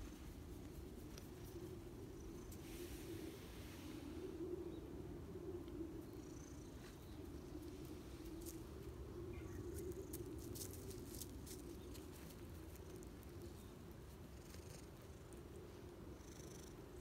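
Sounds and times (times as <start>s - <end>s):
cat purring: 12.9s - 17.0s.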